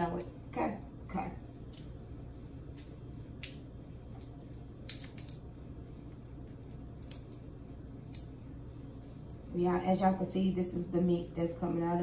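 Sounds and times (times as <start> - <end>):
low hum: 0.0 - 12.0.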